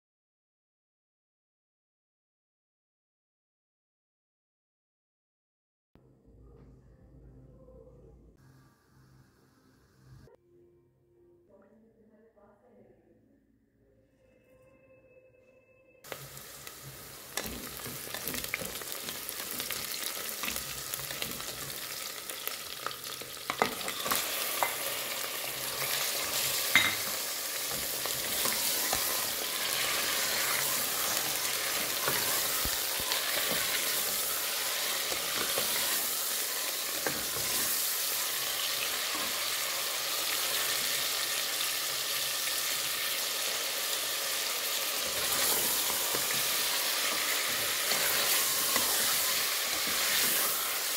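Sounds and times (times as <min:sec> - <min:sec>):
onions sizzling in hot oil: 0:16.0 - 0:50.9.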